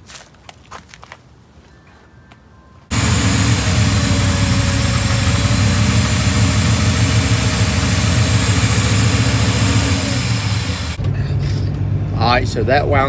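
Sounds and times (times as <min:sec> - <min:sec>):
car engine idling: 0:02.9 - 0:11.6.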